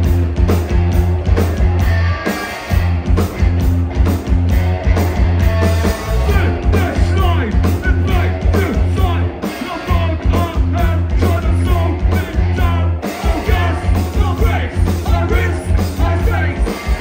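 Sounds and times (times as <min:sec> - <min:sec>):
bass guitar: 0:00.0 - 0:17.0
distorted electric guitars: 0:00.0 - 0:17.0
drums with heavy kick: 0:00.0 - 0:17.0
singer's vocals: 0:06.2 - 0:17.0.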